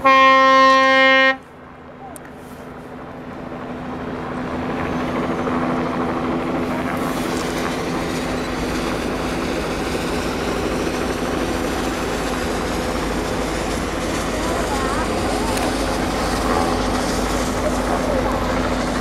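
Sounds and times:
train engine drone: 0:00.0 - 0:19.0
train wheels rumbling on rail: 0:00.0 - 0:19.0.

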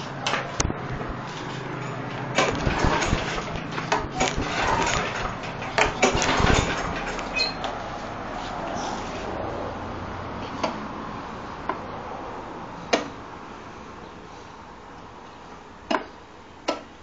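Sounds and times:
lawn mower engine pull-starting: 0:01.3 - 0:07.9.

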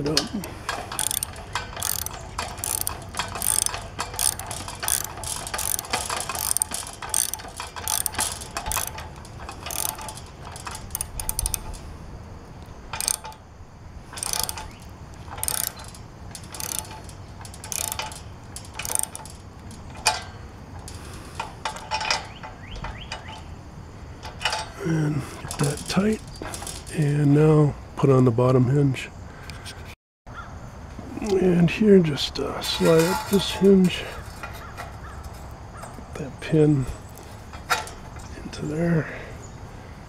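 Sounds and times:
socket ratchet clicking: 0:00.0 - 0:11.8, 0:12.6 - 0:13.4, 0:14.1 - 0:23.4.

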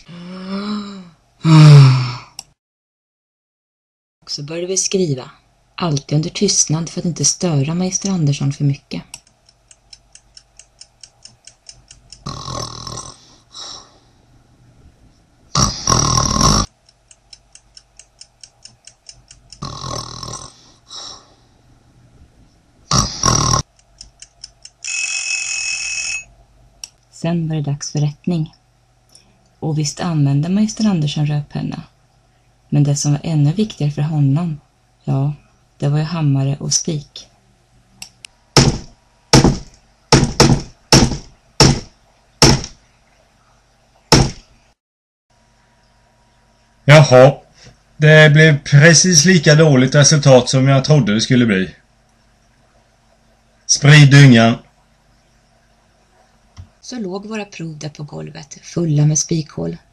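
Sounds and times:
clock ticking rapidly: 0:09.2 - 0:12.3
person snoring loudly: 0:12.2 - 0:14.0, 0:15.5 - 0:16.7, 0:19.6 - 0:21.4, 0:22.9 - 0:23.7
alarm bell ringing: 0:24.8 - 0:26.3
hammer driving nails: 0:38.6 - 0:42.7, 0:44.1 - 0:44.4.

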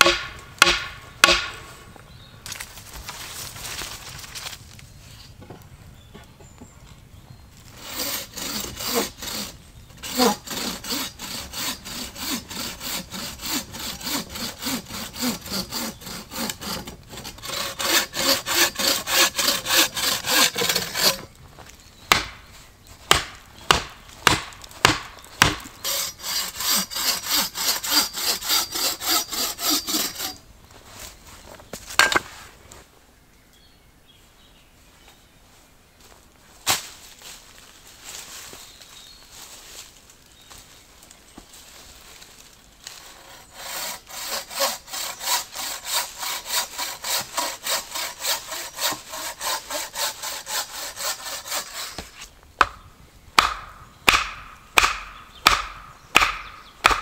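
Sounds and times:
hand saw cutting wood: 0:00.0 - 0:01.5, 0:07.8 - 0:21.3, 0:23.1 - 0:30.4, 0:42.9 - 0:52.3
sharp knocks: 0:00.0 - 0:01.6, 0:53.4 - 0:57.0.

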